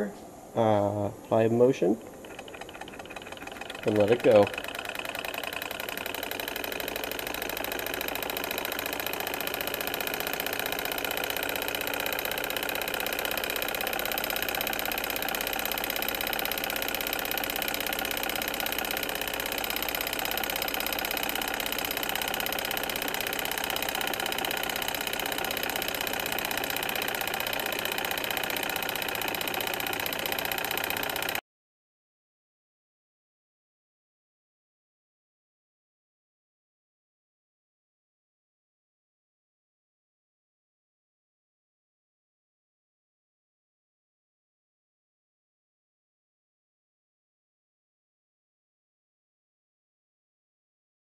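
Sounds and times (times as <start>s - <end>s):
hot air engine running: 2.0s - 31.4s.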